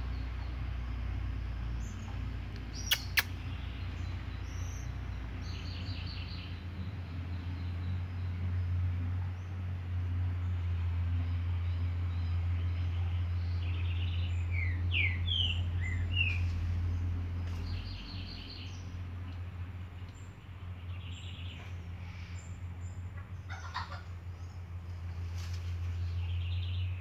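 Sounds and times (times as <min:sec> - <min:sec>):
steady low hum: 0:00.0 - 0:27.0
high-pitched chirps: 0:02.8 - 0:03.3.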